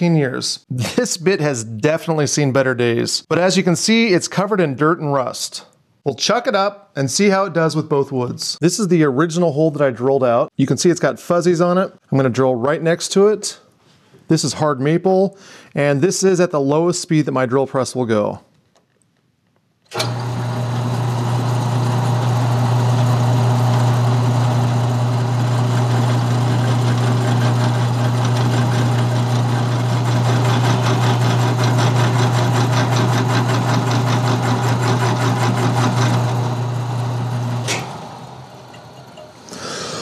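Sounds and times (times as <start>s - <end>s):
drill press motor humming: 19.9s - 39.5s.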